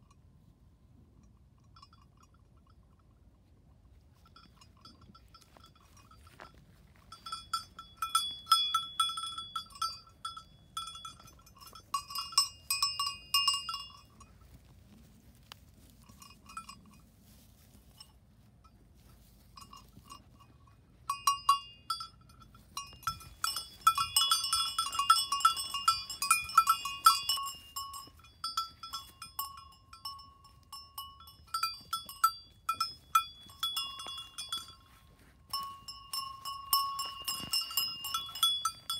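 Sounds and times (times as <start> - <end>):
small metal bell ringing: 1.2 - 3.1, 4.1 - 15.0, 15.8 - 38.9.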